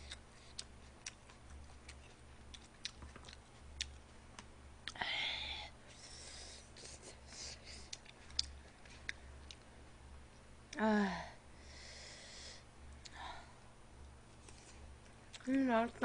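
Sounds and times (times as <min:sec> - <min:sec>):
mouth noises of eating: 0:00.0 - 0:05.3.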